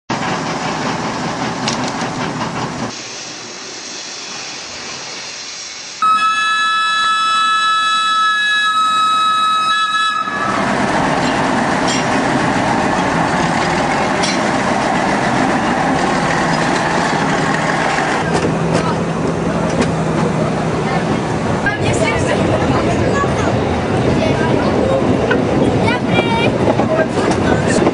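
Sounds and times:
locomotive engine running: 0.1s - 3.7s, 6.2s - 27.9s
train wheels rolling: 0.1s - 6.0s, 9.1s - 27.9s
locomotive horn chord: 6.0s - 10.7s.

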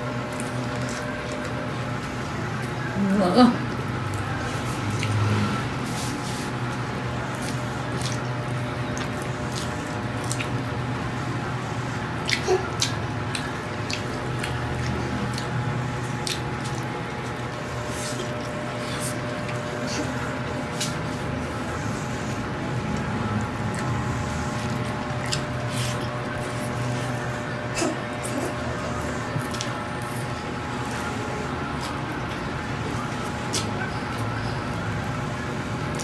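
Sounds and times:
low background hum: 0.0s - 36.0s
people chewing: 0.0s - 36.0s.

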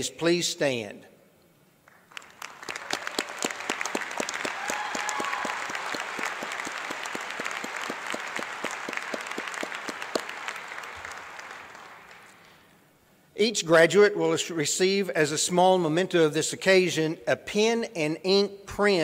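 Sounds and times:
audience applauding: 1.9s - 12.6s.

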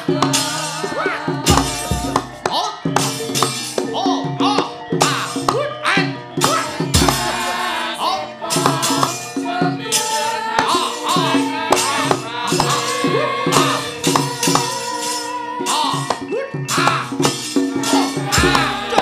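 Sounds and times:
gamelan tones: 0.0s - 19.0s
hand drum strokes: 0.1s - 4.0s, 6.4s - 7.7s, 10.0s - 19.0s
fast metallic clashes: 6.4s - 7.7s.

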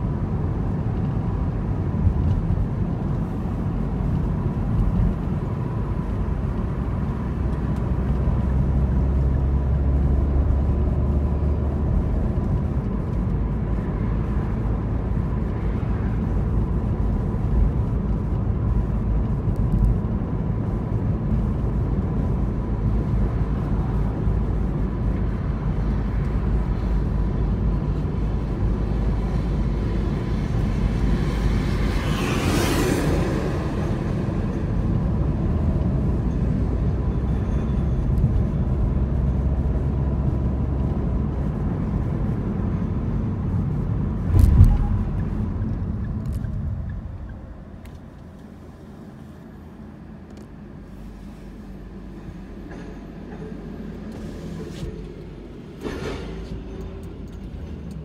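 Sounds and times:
car cabin road rumble: 0.0s - 58.0s
loud whoosh: 43.8s - 47.8s
thump: 44.3s - 45.4s.

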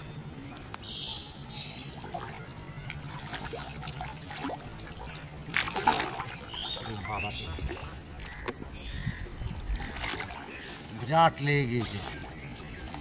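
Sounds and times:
pond water trickling and splashing: 0.0s - 13.0s
loud water splash: 3.0s - 8.0s.

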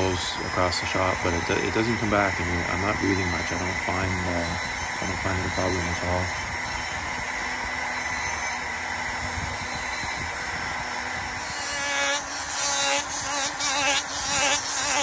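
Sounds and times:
rotary tool carving wood: 0.0s - 15.0s
sanding rasp: 11.5s - 15.0s.

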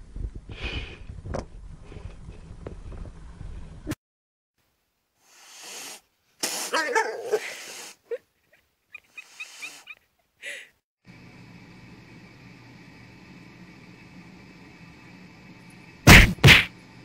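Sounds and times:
cat sneezing and coughing: 6.4s - 8.0s.

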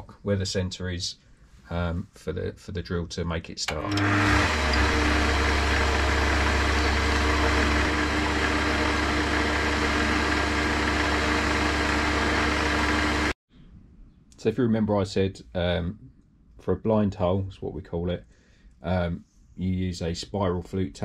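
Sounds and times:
gear whine: 3.8s - 13.4s
metal lathe motor hum: 3.8s - 13.4s.

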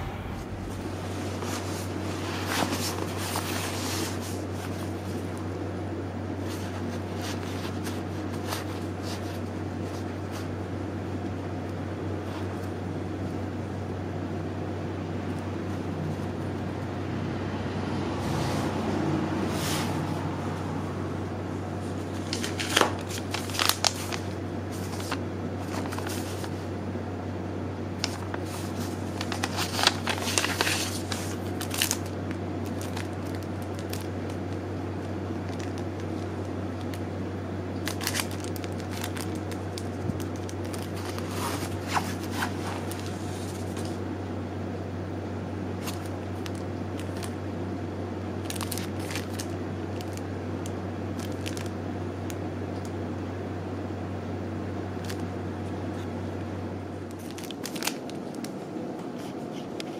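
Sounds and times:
steady low hum: 0.0s - 59.9s
fabric and plastic rustling: 0.7s - 5.4s, 6.4s - 10.5s, 21.8s - 26.7s, 28.0s - 34.6s, 37.8s - 44.0s, 48.4s - 50.2s, 51.2s - 51.8s, 57.1s - 59.9s.

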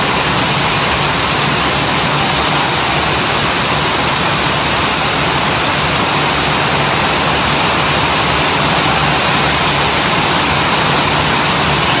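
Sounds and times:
factory machines clattering: 0.0s - 12.0s
low machine hum: 0.0s - 12.0s.

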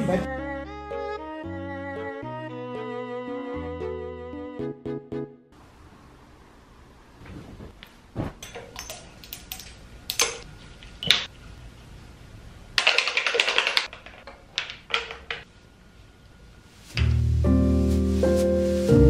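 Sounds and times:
plastic bottles clicking and tapping: 12.8s - 15.4s
hands rustling on skin: 17.8s - 19.0s.

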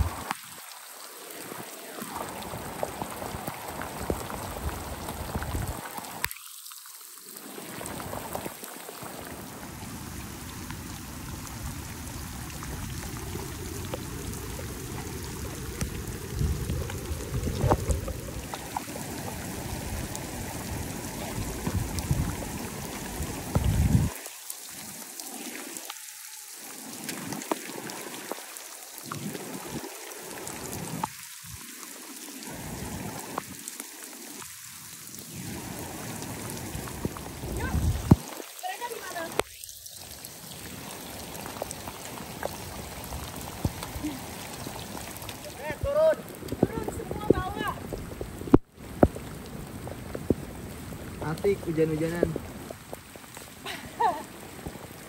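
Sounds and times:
heavy rain hissing: 0.0s - 55.0s.

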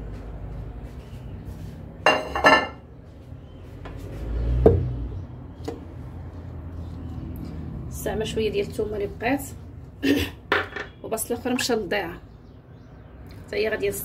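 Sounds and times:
ceramic plate clinking: 2.1s - 2.8s.

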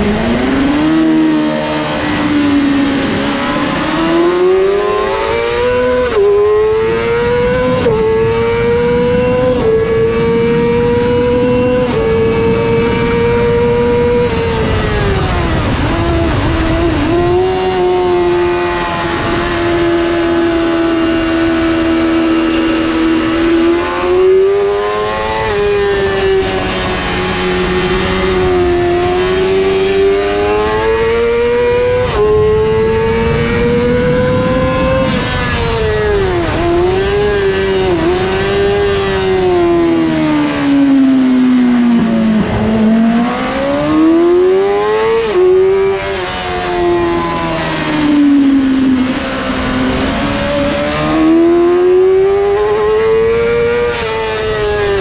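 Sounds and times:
motorcycle engine at high revs: 0.0s - 55.0s.

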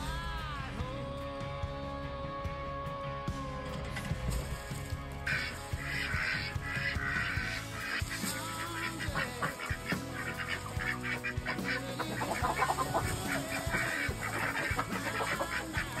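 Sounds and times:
background music: 0.0s - 16.0s
ducks quacking: 5.2s - 16.0s
chickens clucking: 5.3s - 16.0s.

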